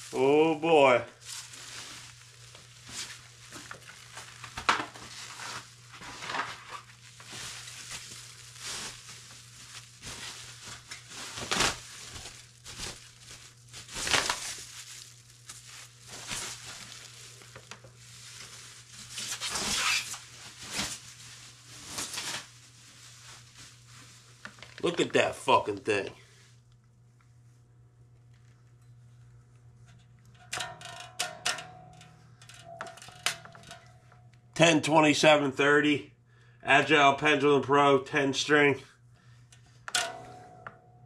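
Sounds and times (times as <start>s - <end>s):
plastic bag crinkling: 0.0s - 26.0s.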